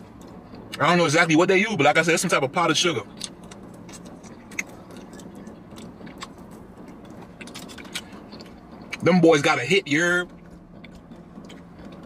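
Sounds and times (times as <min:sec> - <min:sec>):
low steady hum: 0:00.0 - 0:12.0
chewing and lip smacking: 0:00.1 - 0:00.8, 0:03.1 - 0:09.1, 0:10.2 - 0:12.0.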